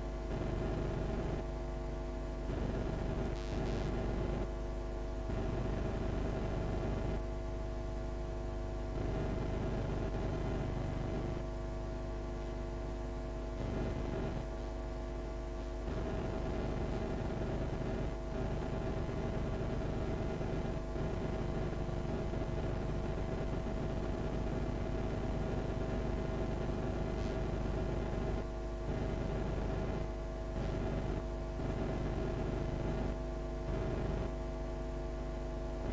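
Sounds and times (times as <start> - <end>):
electrical hum and buzz: 0.0 - 35.9.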